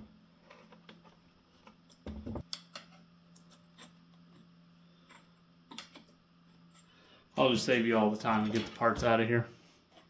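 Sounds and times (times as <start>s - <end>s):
low steady hum: 0.0s - 10.0s
metal tools clicking and tapping: 1.9s - 4.4s.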